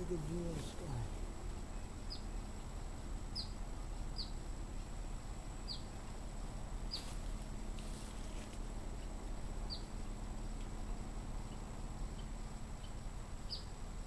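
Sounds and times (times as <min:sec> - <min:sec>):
outdoor background hiss: 0:00.0 - 0:14.0
small bird chirping: 0:01.7 - 0:02.5, 0:03.3 - 0:04.4, 0:05.6 - 0:06.0, 0:06.8 - 0:07.2, 0:09.0 - 0:10.0, 0:10.6 - 0:13.8
soft rustle: 0:06.8 - 0:09.4.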